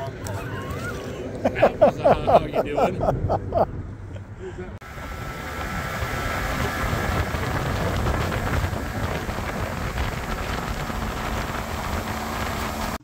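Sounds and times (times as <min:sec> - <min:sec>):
outboard motor driving boat: 0:04.8 - 0:13.0
water along hull: 0:04.8 - 0:13.0
wind on microphone: 0:04.8 - 0:13.0.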